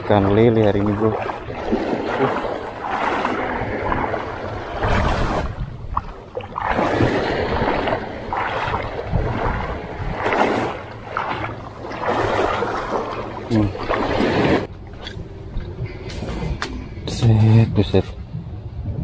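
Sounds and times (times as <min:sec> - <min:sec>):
wind on microphone: 0:00.0 - 0:14.7, 0:15.4 - 0:19.0
small waves breaking: 0:00.0 - 0:15.0.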